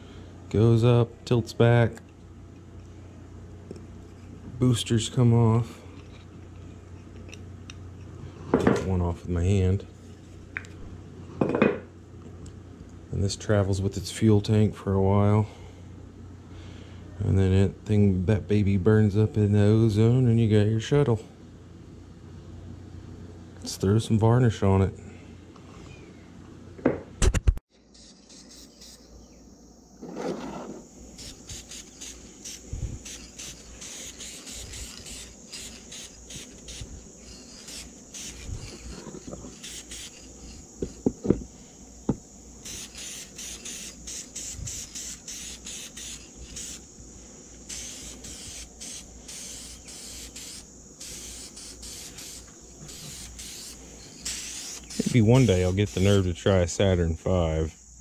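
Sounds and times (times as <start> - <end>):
insect chorus: 27.7 - 58.0
aerosol spray hissing: 27.9 - 29.3, 30.9 - 56.4.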